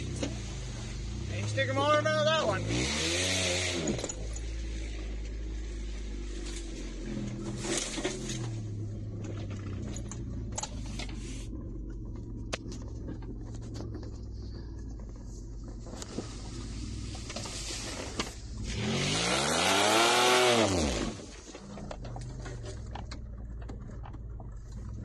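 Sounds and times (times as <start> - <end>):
car engine running: 0.0 - 25.0
engine revving: 0.0 - 25.0
tire spraying through mud: 0.0 - 25.0
body knocks and rattles: 7.3 - 10.9, 11.8 - 16.2.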